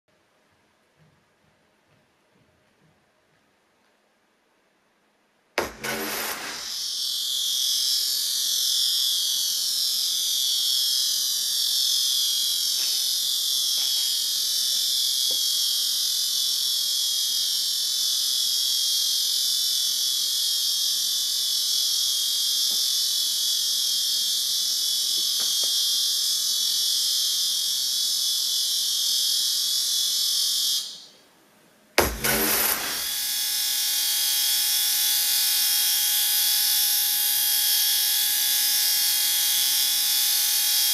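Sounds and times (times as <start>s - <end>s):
sharp click: 5.6s - 6.8s
shrill electronic drone: 5.6s - 31.1s, 32.0s - 40.9s.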